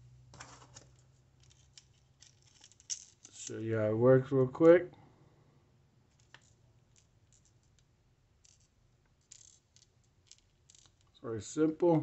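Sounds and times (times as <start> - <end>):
faint plastic clicks and rustles: 0.3 - 3.6, 6.1 - 11.2.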